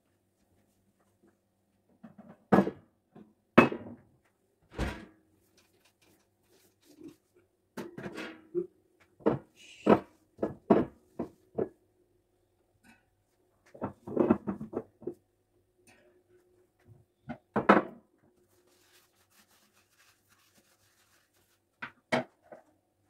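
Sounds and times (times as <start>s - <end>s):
bottles and rack knocking on countertop: 2.5s - 2.8s, 3.6s - 4.0s, 9.2s - 11.7s, 17.5s - 18.0s.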